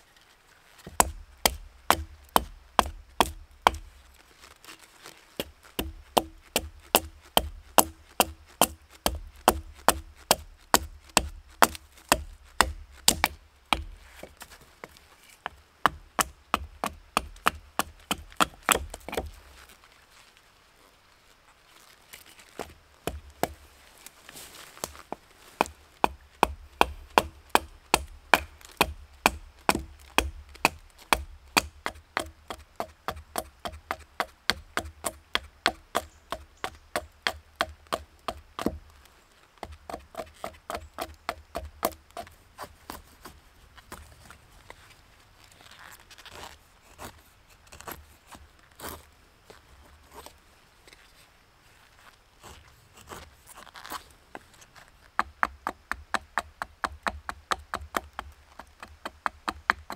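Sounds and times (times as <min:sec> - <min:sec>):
hatchet chopping wood: 0:00.9 - 0:03.9, 0:05.4 - 0:14.5, 0:15.8 - 0:19.4, 0:22.6 - 0:23.6, 0:24.9 - 0:38.9, 0:39.6 - 0:42.7, 0:55.2 - 0:59.9.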